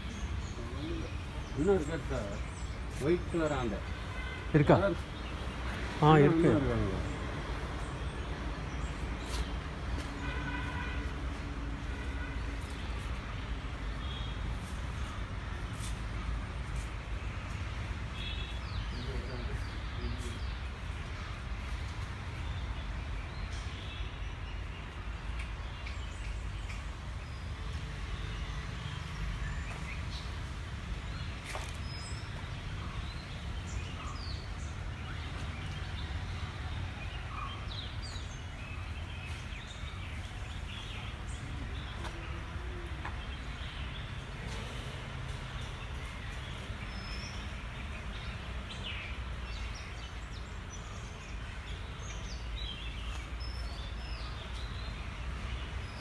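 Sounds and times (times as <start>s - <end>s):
small birds chirping: 0.0s - 11.1s, 11.8s - 56.0s.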